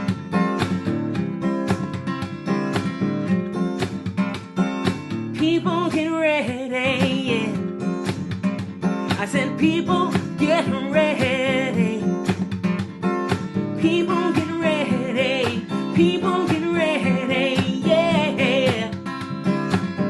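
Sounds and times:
acoustic guitar strumming: 0.0 - 20.0
person singing with vibrato: 5.4 - 7.6, 9.2 - 12.2, 13.8 - 19.0.

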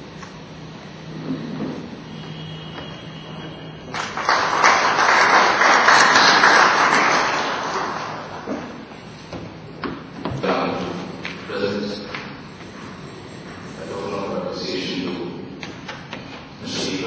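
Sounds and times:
audience applauding: 3.8 - 8.7.

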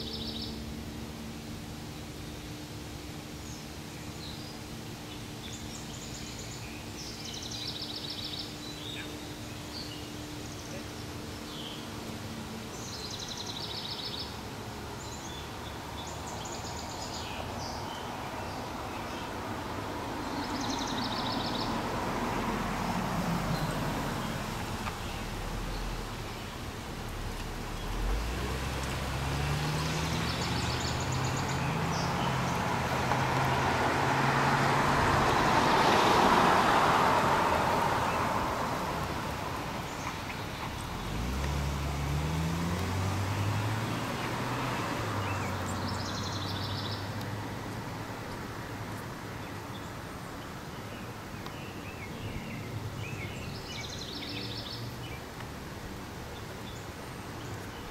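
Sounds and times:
birds chirping: 0.0 - 57.9
passing vehicle: 0.0 - 57.9
engine accelerating through gears: 21.1 - 47.6.

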